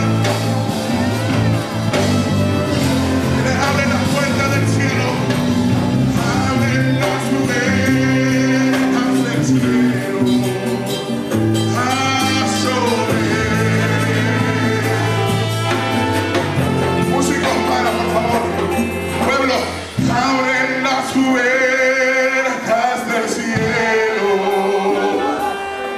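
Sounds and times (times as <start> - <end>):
man singing into microphone: 0.0 - 0.6, 3.2 - 5.4, 6.1 - 16.1, 16.9 - 25.9
congregation singing: 0.0 - 25.9
sustained instrumental notes: 0.0 - 25.9.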